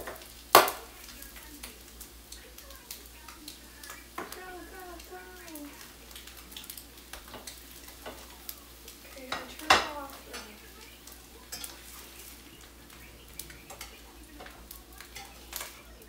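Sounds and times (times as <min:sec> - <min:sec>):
faint sizzling: 0:00.0 - 0:16.0
utensils scraping a frying pan: 0:05.8 - 0:15.9.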